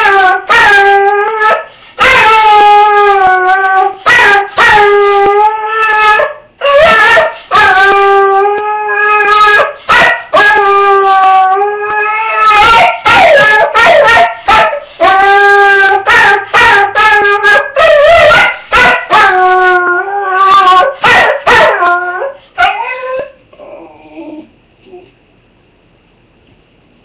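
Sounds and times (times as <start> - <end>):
dog howling and yipping: 0.0 - 24.5
dog whimpering: 21.8 - 25.2.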